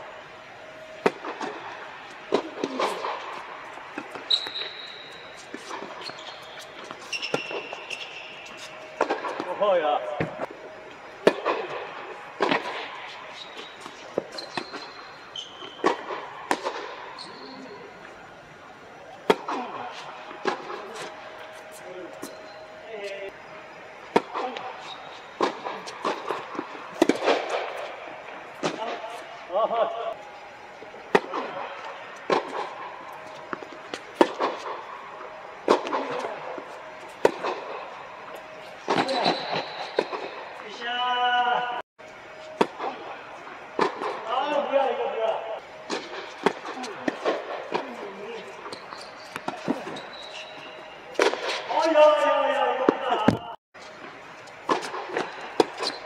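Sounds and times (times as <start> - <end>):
tennis ball bouncing: 1.0 - 9.6, 11.2 - 16.9, 24.1 - 27.9, 31.1 - 34.8, 35.6 - 40.4, 45.9 - 50.1, 51.1 - 51.6, 54.6 - 56.0
tennis ball hits with echo: 11.2 - 14.9, 15.6 - 17.1, 19.2 - 19.8, 25.4 - 27.9, 31.1 - 34.8, 51.1 - 51.7.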